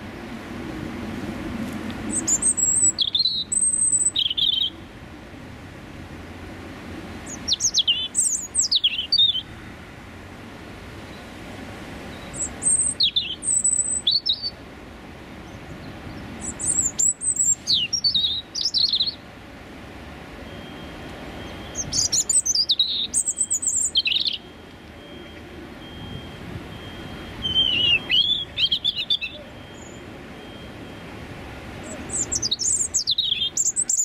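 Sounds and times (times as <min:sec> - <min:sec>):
robin singing: 0:02.1 - 0:04.9, 0:07.2 - 0:09.6, 0:12.1 - 0:14.7, 0:15.4 - 0:19.3, 0:20.4 - 0:34.0.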